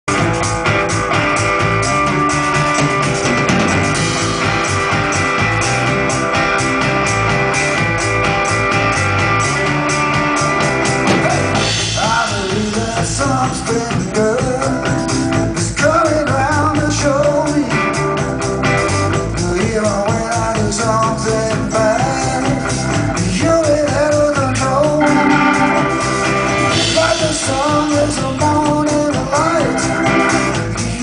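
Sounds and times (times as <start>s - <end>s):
bass guitar: 0.0s - 31.0s
drum kit beat: 0.1s - 31.0s
electric guitar: 0.1s - 31.0s
person singing: 23.3s - 29.8s.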